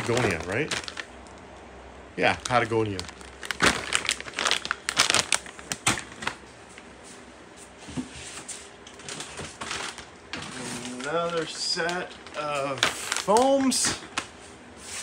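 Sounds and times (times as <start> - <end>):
plastic and paper crinkling: 0.0 - 1.4, 2.3 - 6.4, 8.9 - 14.4.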